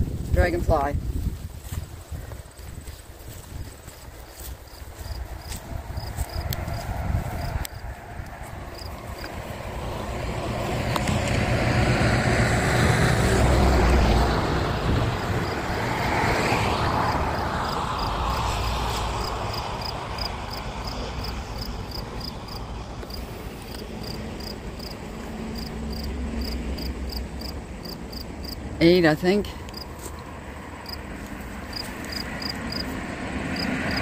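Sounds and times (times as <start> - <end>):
motor vehicle passing: 2.1 - 34.0
insect chirping: 4.0 - 8.0, 8.6 - 10.2, 17.0 - 28.7, 29.6 - 30.1, 30.7 - 31.0, 31.7 - 32.9, 33.6 - 34.0.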